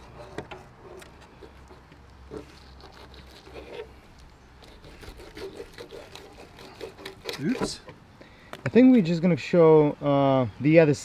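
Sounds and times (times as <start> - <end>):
knife scraping on cutting board: 4.6 - 7.9.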